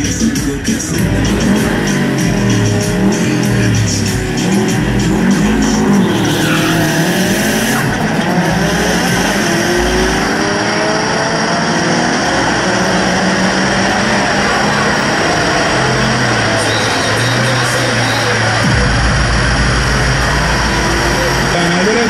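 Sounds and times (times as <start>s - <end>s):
car engine revving: 0.0s - 22.0s.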